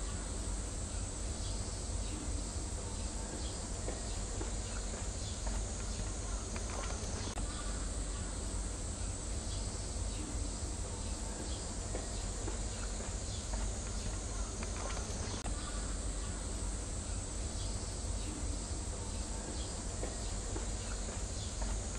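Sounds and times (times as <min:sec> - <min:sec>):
faint clicks: 0:03.9 - 0:07.4, 0:11.9 - 0:15.4.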